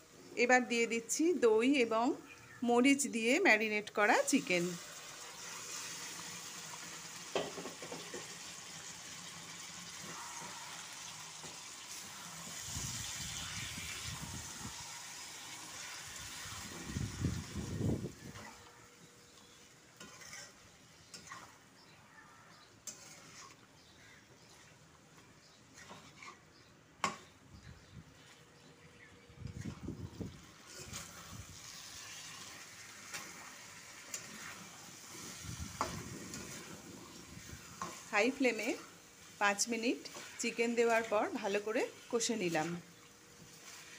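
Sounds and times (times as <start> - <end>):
chicken sizzling in hot oil: 3.1 - 21.8, 22.4 - 23.6, 29.5 - 43.9
spatula stirring in metal pan: 18.3 - 27.4, 30.6 - 43.9.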